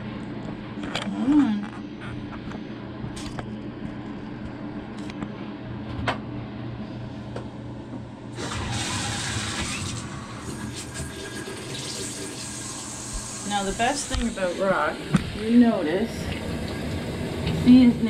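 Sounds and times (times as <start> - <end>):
water running into bathtub: 8.4 - 18.0.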